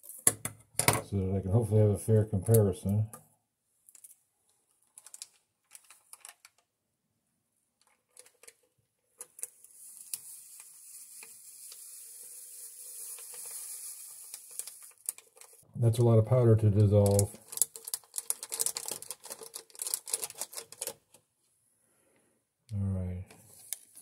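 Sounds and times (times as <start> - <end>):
drink packet clicks and rustles: 4.8 - 6.7, 7.8 - 10.3, 13.0 - 15.6, 16.8 - 21.2
powder pouring into bottle hiss: 9.4 - 15.6.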